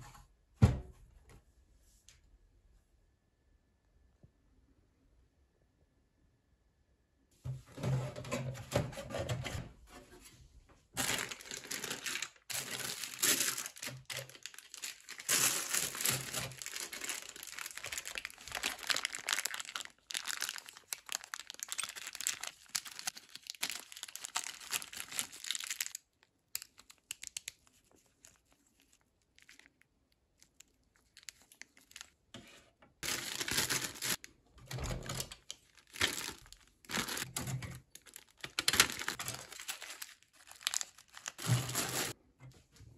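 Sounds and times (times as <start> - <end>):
plastic bag crinkling: 11.0 - 32.2, 33.0 - 42.2.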